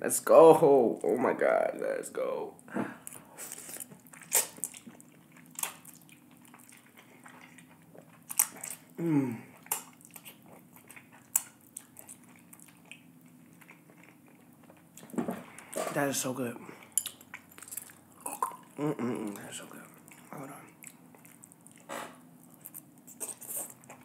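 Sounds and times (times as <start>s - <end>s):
wet chewing: 3.0s - 15.8s, 16.8s - 24.0s
lip smacks and mouth clicks: 3.1s - 8.9s, 9.6s - 13.1s
person humming mm: 9.0s - 9.6s, 18.2s - 19.5s.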